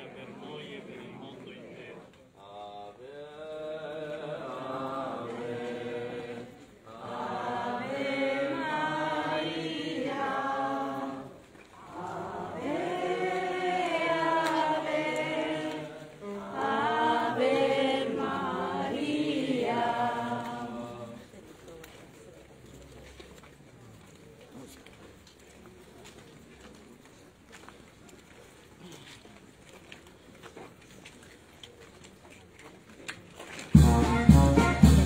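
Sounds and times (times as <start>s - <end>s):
group singing a hymn: 0.0s - 21.3s.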